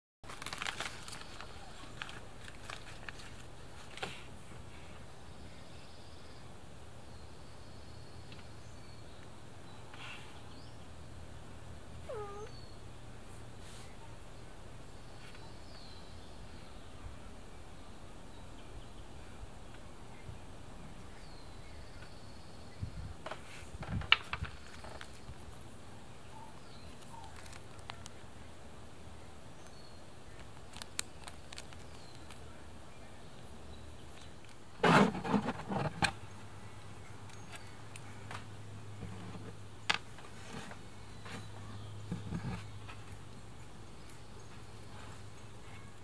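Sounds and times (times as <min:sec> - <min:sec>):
plastic bag crinkling: 0:00.2 - 0:03.9, 0:27.0 - 0:28.1
faint low hum: 0:00.3 - 0:46.0.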